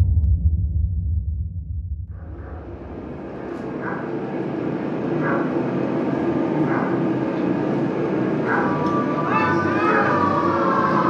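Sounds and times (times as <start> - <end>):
aircraft engines droning: 2.1 - 11.0
dog barking: 3.4 - 4.4, 5.1 - 5.8, 6.5 - 7.4, 8.4 - 10.1.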